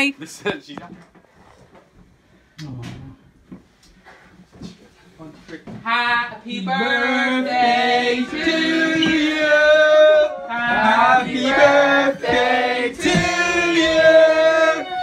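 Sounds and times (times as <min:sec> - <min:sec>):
group singing in chorus: 0:06.5 - 0:15.0.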